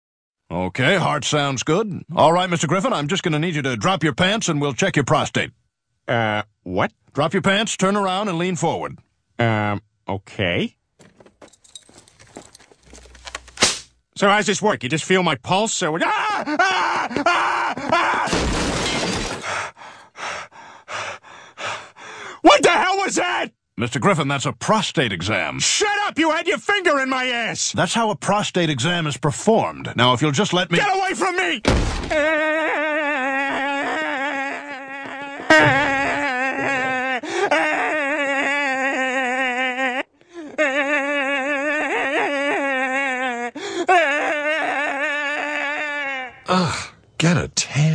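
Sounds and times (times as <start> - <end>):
man yelling: 15.8 - 18.3, 22.4 - 23.5, 30.7 - 34.7
cartoon man screaming: 16.0 - 18.5, 22.5 - 23.5, 30.8 - 46.6
glass and objects crashing: 18.3 - 19.6
quick breaths: 19.3 - 22.4.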